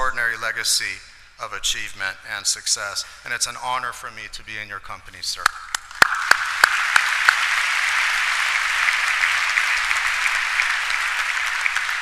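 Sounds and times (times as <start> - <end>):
sharp individual claps: 5.4 - 12.0
audience applauding: 5.7 - 12.0.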